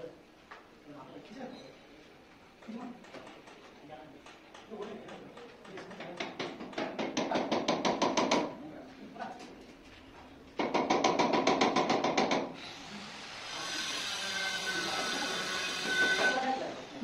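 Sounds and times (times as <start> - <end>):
hammer striking concrete: 4.5 - 8.5, 10.6 - 12.5, 14.8 - 16.4.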